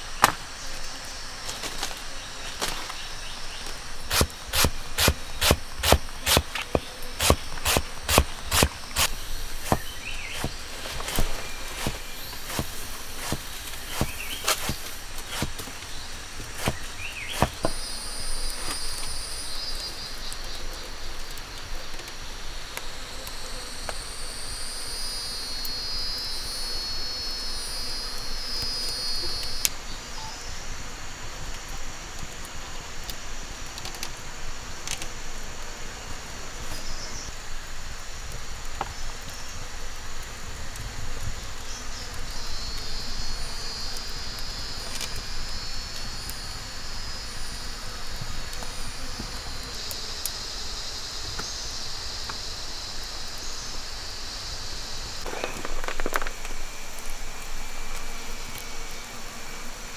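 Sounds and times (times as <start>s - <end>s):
high pulsing insect trill: 0.0s - 21.6s, 22.2s - 59.9s
forest insects calling: 0.0s - 59.9s
rustling: 1.4s - 17.8s.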